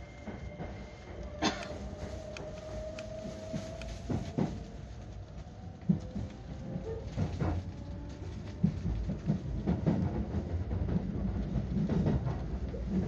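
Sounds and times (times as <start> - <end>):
train running rumble: 0.0 - 13.0
wheels knocking on rail joints: 0.0 - 13.0.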